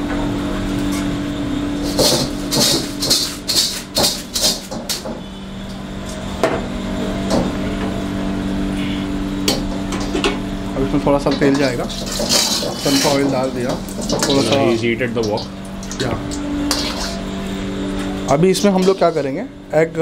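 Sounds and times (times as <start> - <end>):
steady low hum: 0.0 - 20.0
metal ladle scraping wok: 11.9 - 14.5, 16.6 - 17.3.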